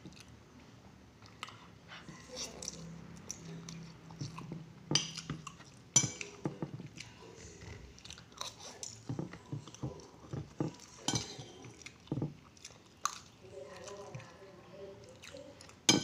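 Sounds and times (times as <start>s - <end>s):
person chewing: 0.0s - 0.4s, 1.2s - 14.3s
metal spoon clinking on plate: 6.0s - 6.4s, 11.0s - 11.6s.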